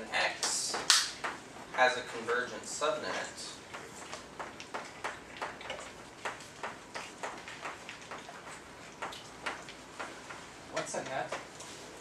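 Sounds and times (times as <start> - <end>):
chalk tapping on blackboard: 6.2 - 11.5.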